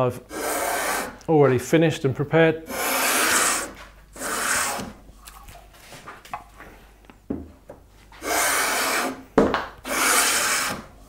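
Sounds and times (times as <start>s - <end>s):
hand plane shaving wood: 0.2s - 1.2s, 2.6s - 5.0s, 8.2s - 9.2s, 9.8s - 11.0s.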